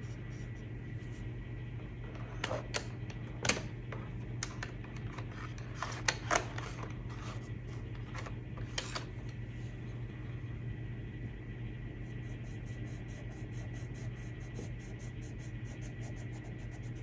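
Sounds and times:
low hum: 0.0 - 17.0
pencils clicking and rattling: 4.4 - 9.1.

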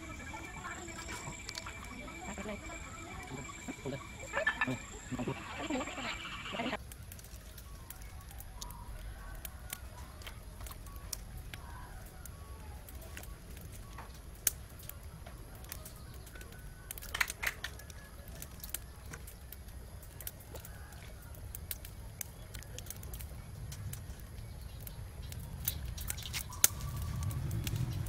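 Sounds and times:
faint bird calls: 0.0 - 6.8
small crackles: 0.0 - 28.0.

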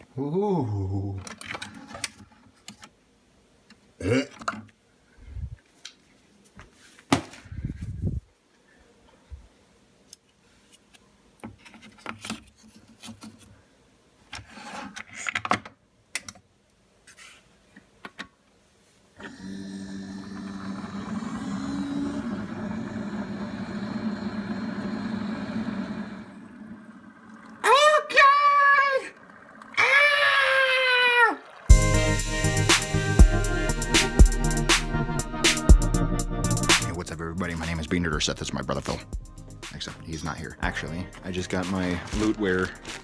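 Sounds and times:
coffee brewer humming and hissing: 19.2 - 34.9, 40.1 - 43.0.

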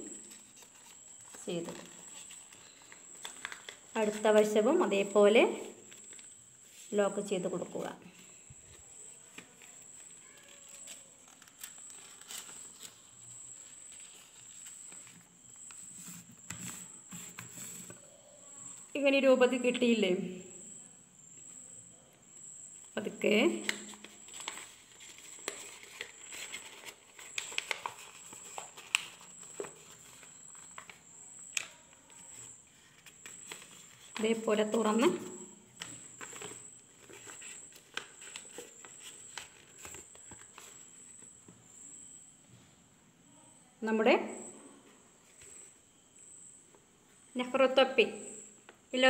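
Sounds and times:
paper rustling and crinkling: 0.0 - 7.0, 8.1 - 18.1, 23.6 - 41.4.

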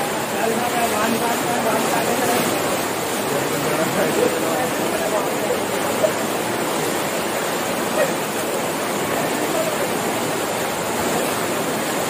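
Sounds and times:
mountain stream rushing: 0.0 - 12.0.

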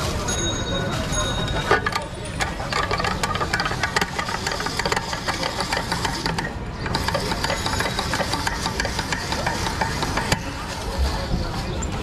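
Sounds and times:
potato cutter clicking and scraping: 1.9 - 10.8.

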